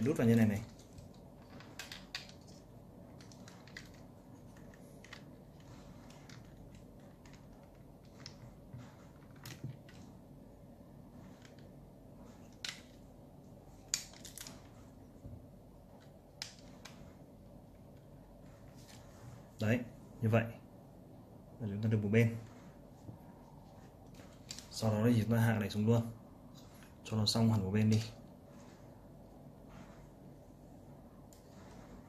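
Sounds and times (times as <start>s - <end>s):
plastic toy parts clicking: 0.6s - 8.4s.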